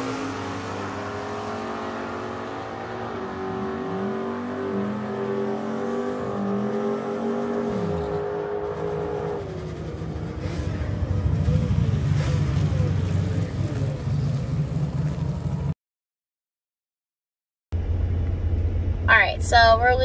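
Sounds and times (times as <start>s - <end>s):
drag car engine at full throttle: 0.0s - 15.7s.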